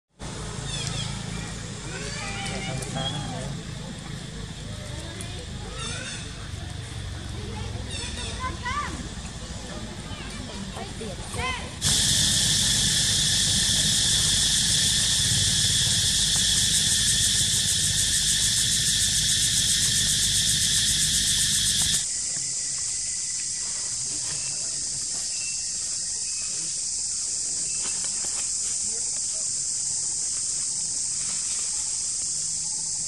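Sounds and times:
high insect hiss: 0.2s - 33.0s
insects pulsing drone: 0.2s - 33.0s
low rumble: 11.8s - 22.0s.

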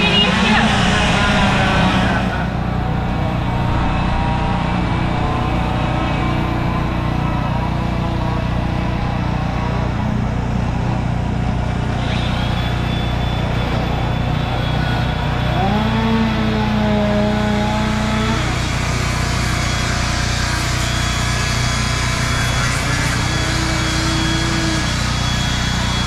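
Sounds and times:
chainsaws droning: 0.0s - 26.0s
grinder whining: 0.0s - 26.0s
motor rising in pitch: 0.0s - 26.0s.

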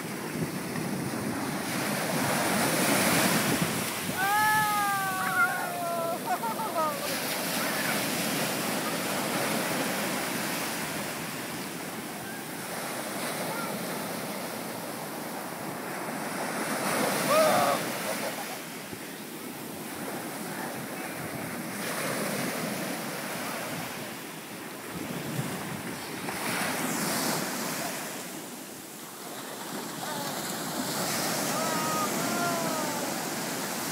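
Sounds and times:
wind buffeting microphone: 0.0s - 6.8s
ocean surf breaking on beach: 0.0s - 33.9s
high voice calling out: 4.2s - 7.0s.

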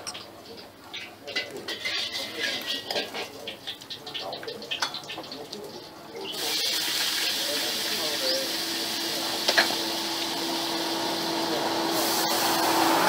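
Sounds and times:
steady hiss: 6.2s - 13.0s.

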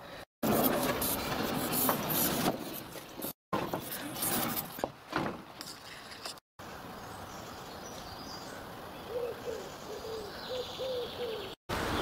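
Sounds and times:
outdoor background hiss: 3.6s - 12.0s
pigeon cooing: 9.1s - 11.6s.

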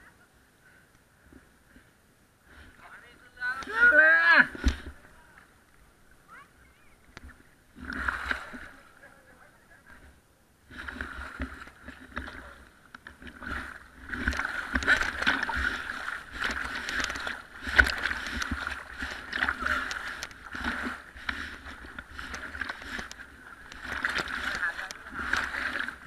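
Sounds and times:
water slapping against camera: 7.1s - 9.0s, 10.7s - 26.0s.

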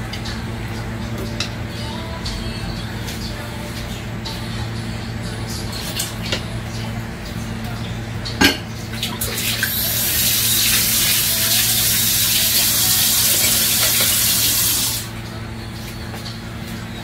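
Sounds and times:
steady low hum: 0.0s - 10.5s, 14.9s - 17.0s
water running from tap: 9.0s - 15.1s.

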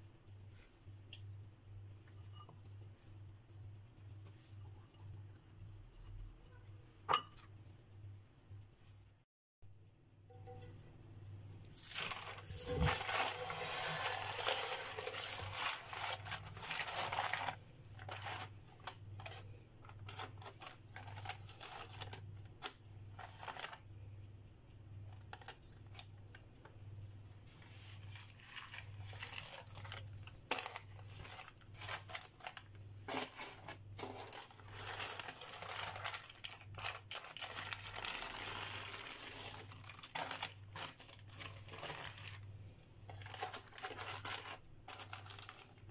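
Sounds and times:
baking paper crinkling: 11.8s - 24.0s, 25.0s - 26.5s, 27.5s - 45.9s.

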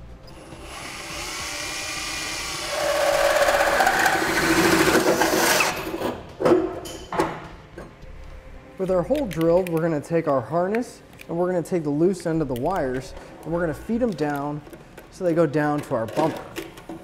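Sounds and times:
drill motor whine: 0.3s - 5.0s
hole saw cutting metal: 0.3s - 5.9s.

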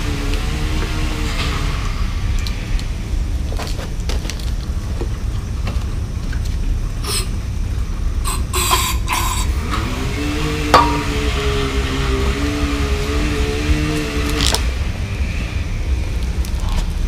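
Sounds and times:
low rumble: 9.6s - 13.1s.

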